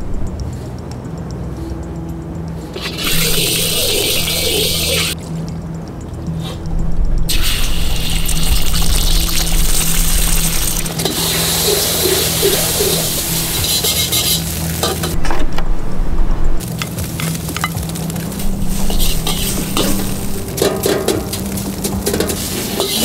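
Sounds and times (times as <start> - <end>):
background music: 0.0 - 23.0
wok sizzling: 2.7 - 5.2, 7.3 - 15.2, 16.6 - 23.0.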